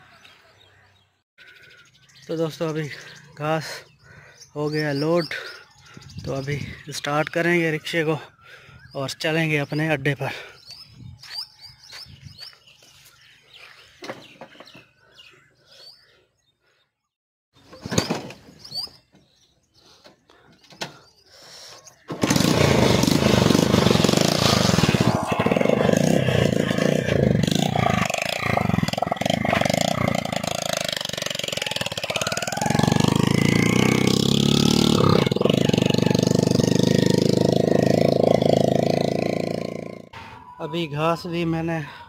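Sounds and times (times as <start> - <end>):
small engine running: 22.1 - 40.1.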